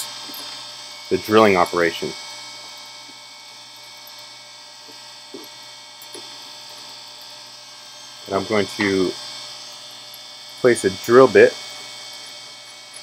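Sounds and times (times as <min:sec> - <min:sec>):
steady hum: 0:00.0 - 0:13.0.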